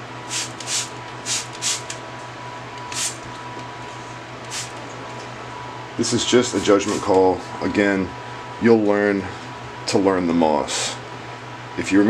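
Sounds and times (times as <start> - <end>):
spray bottle spritzing: 0.3 - 1.9, 2.9 - 3.2, 4.5 - 4.7.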